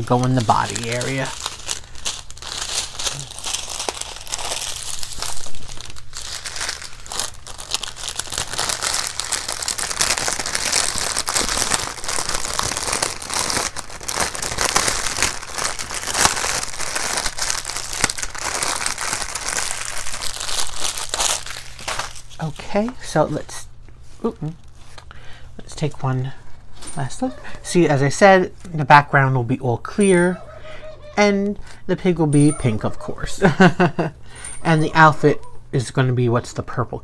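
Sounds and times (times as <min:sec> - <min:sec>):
plastic bags crinkling: 0:00.0 - 0:25.2.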